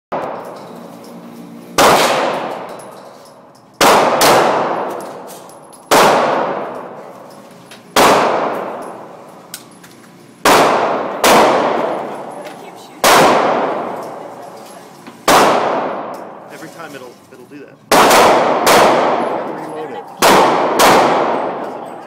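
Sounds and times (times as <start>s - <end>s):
echoing pistol shots: 1.8s - 2.8s, 3.8s - 5.3s, 5.9s - 7.0s, 7.9s - 9.0s, 10.4s - 12.3s, 13.0s - 14.2s, 15.2s - 16.4s, 17.9s - 19.5s, 20.2s - 21.8s.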